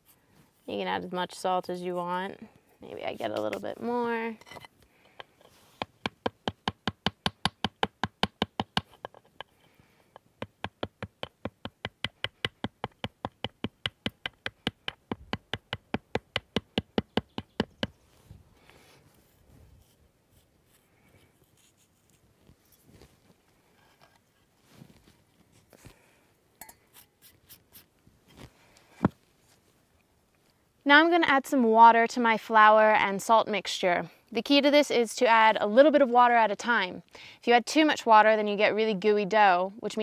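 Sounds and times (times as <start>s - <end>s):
stone tapping salt rock: 5.1s - 9.5s.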